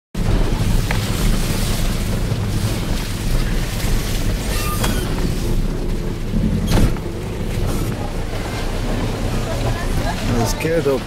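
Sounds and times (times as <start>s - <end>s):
engine and tyres rumbling: 0.1s - 11.0s
rattling in vehicle cab: 0.2s - 9.0s.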